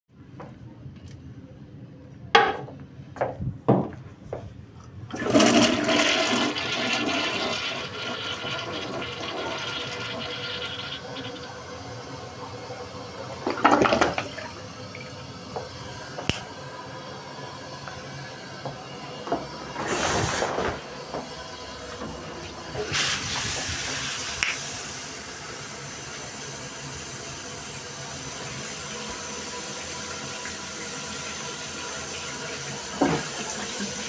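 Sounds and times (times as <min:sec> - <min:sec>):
toilet flushing: 0:05.1 - 0:34.0
cistern refilling hiss: 0:19.4 - 0:22.0, 0:22.7 - 0:34.0.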